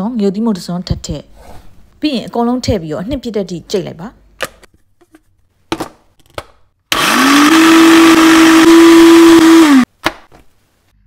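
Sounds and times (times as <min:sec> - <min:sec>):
blender motor grinding: 0:06.9 - 0:09.9.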